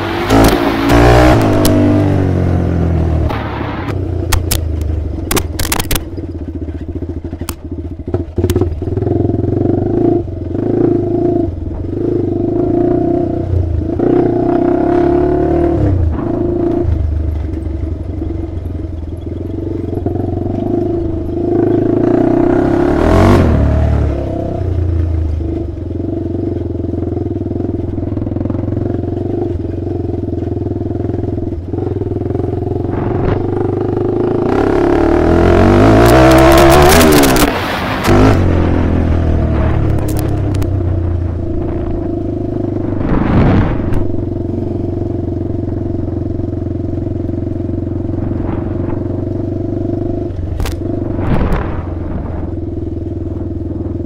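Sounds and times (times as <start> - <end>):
atv engine running: 0.0 - 54.0
sharp clicks: 4.3 - 6.2
brief rush of noise: 42.9 - 44.2.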